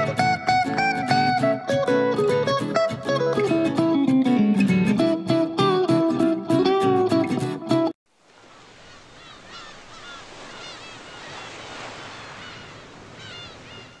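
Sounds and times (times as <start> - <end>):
plucked guitar music: 0.0 - 8.0
ocean surf wash: 8.1 - 14.0
small birds chirping: 8.5 - 14.0.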